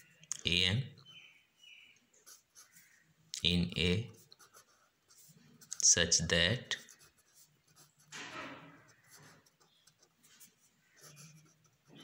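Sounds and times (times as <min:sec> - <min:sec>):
pen scratching on paper: 0:02.2 - 0:02.9, 0:04.1 - 0:05.9, 0:06.8 - 0:12.0.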